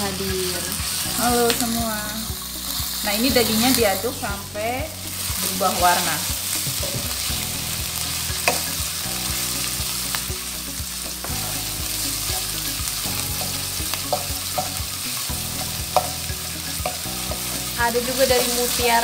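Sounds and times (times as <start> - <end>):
meat and onion sizzling in pan: 0.0 - 19.0
wooden spatula knocking pan: 13.4 - 14.9, 15.6 - 18.8.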